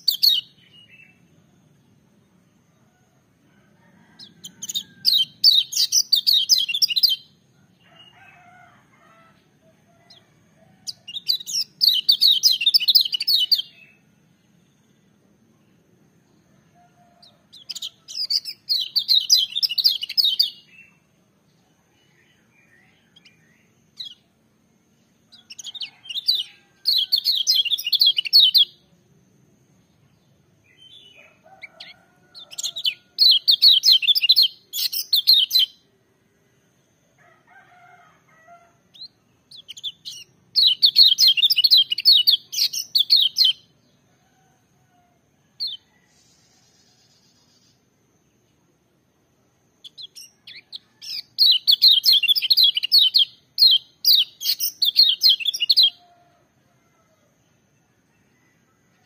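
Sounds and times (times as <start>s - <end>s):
faint bird chirps: 0.0s - 29.2s, 37.2s - 48.8s, 49.4s - 59.0s.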